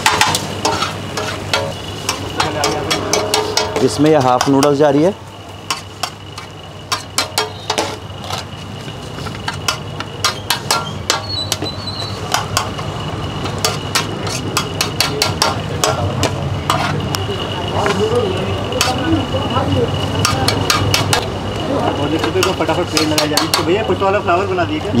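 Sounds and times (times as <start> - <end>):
metal ladle clanking on griddle: 0.0 - 5.0, 5.6 - 8.5, 9.4 - 17.0, 18.8 - 19.1, 20.1 - 21.3, 22.2 - 23.8.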